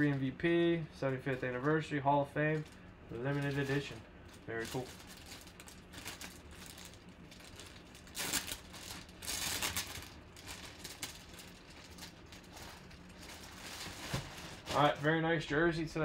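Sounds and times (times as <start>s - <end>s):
plastic bag crinkling: 2.5s - 15.2s.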